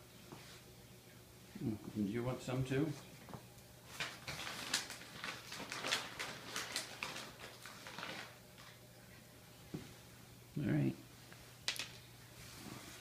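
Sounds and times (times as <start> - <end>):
cat crunching treats: 4.0 - 8.8.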